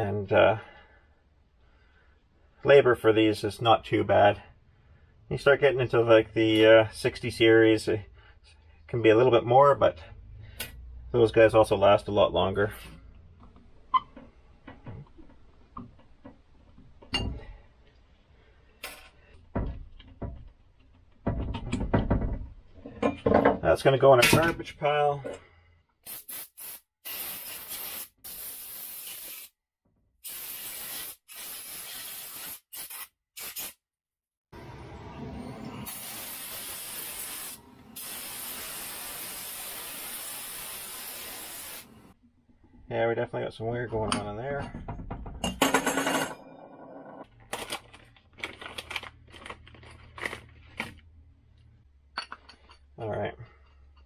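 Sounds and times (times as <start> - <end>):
air blow gun hissing: 26.1 - 29.6, 30.2 - 33.8, 35.7 - 42.0.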